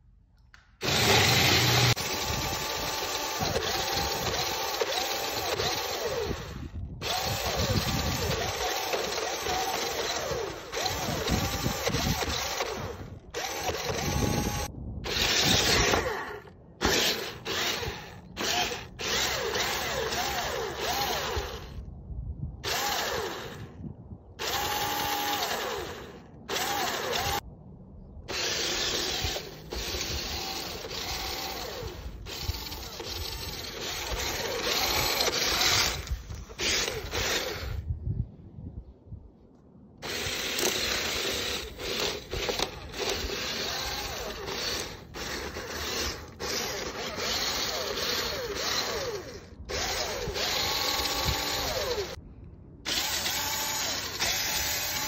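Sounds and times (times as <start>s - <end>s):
wheels churning through sand: 0.8s - 16.0s
toy car motors whining: 0.8s - 21.8s, 22.6s - 23.7s, 24.4s - 27.4s, 28.3s - 37.8s, 40.0s - 52.2s, 52.9s - 55.0s.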